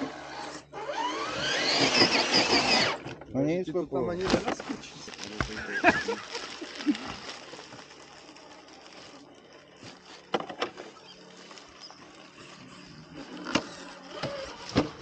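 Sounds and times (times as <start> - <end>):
small electric motor whirring: 0.0 - 3.1, 7.2 - 15.0.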